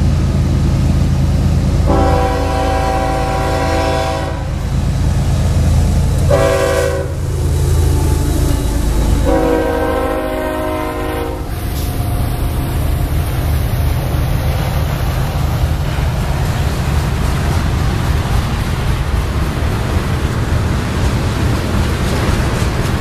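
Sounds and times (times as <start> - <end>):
train low rumble: 0.0 - 23.0
locomotive air horn blasts: 1.8 - 4.6, 6.2 - 7.2, 9.0 - 11.8.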